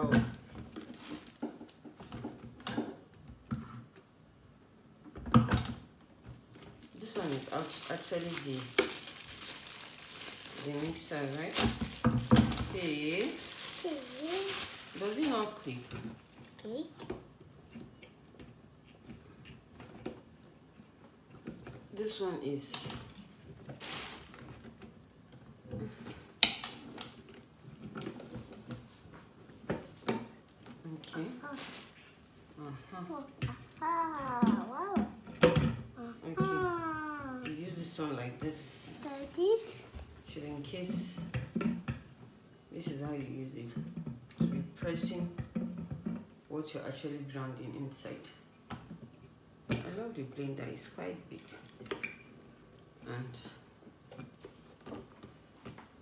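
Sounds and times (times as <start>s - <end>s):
plastic wrapping crinkling: 0.7s - 1.5s, 6.5s - 16.2s, 23.8s - 24.4s.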